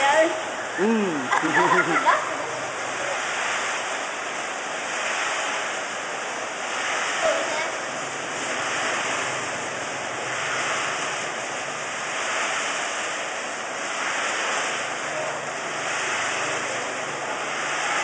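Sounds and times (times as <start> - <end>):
faint low machine hum: 0.0 - 5.2.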